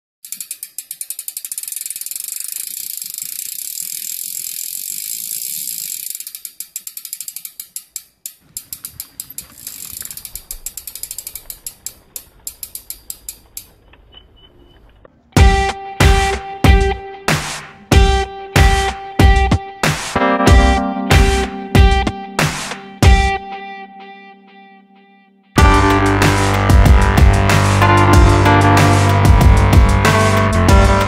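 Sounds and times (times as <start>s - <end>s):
bike freehub clicking: 0.2s - 14.1s.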